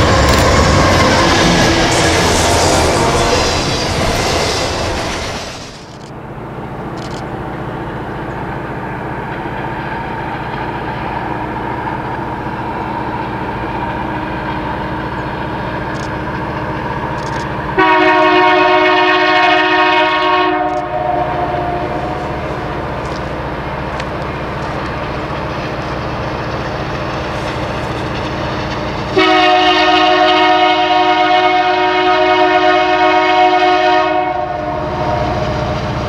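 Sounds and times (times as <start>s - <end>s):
loud opening sound: 0.0s - 6.1s
freight train rumble: 0.0s - 36.0s
locomotive air horn: 17.8s - 22.7s, 29.2s - 35.8s.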